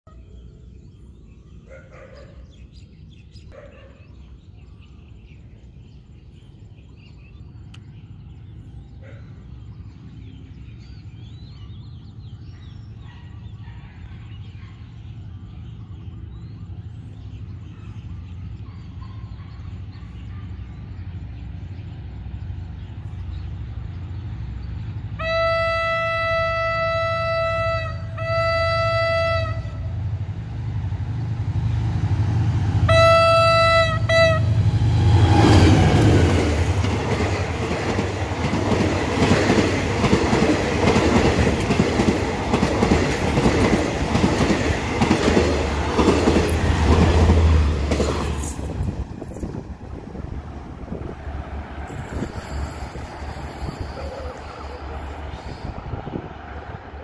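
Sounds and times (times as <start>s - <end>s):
diesel locomotive rumble: 7.6s - 57.0s
train horn blast: 25.2s - 30.2s, 32.7s - 36.3s.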